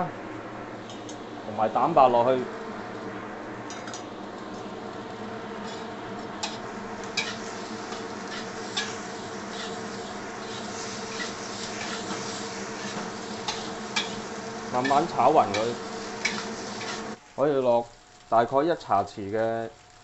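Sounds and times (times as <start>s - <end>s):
steady buzzing hum: 0.0s - 17.4s
metal spatula scraping wok: 5.5s - 17.2s.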